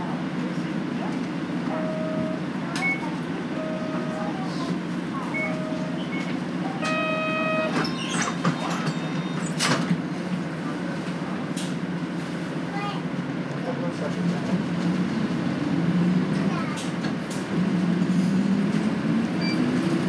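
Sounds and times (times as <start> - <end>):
bus diesel engine running: 0.0 - 20.0
short electronic beeps: 5.3 - 8.2.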